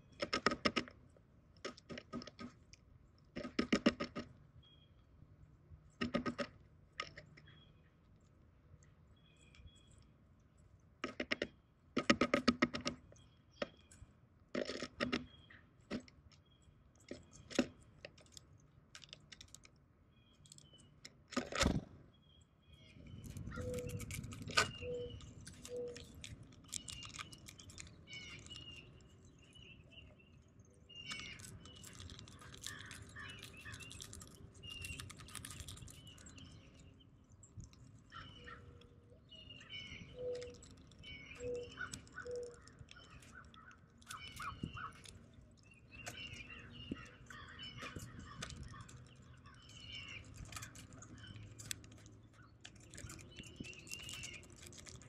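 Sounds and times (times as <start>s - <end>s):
bills tapping on feeder: 0.1s - 1.0s, 3.3s - 4.4s, 6.0s - 7.2s, 11.0s - 16.4s, 39.6s - 55.0s
bird chirps: 4.6s - 5.1s, 7.3s - 8.2s, 9.1s - 10.2s, 22.1s - 55.0s.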